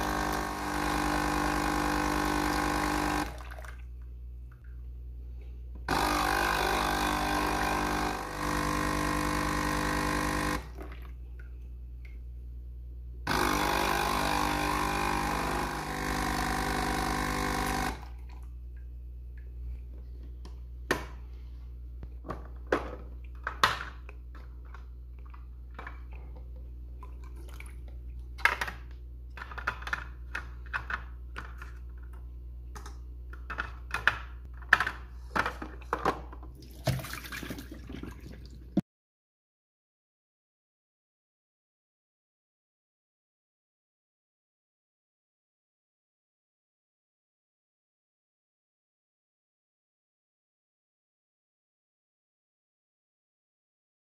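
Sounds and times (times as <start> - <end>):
coffee machine pump buzzing: 0.0 - 3.4, 5.9 - 10.8, 13.3 - 18.2.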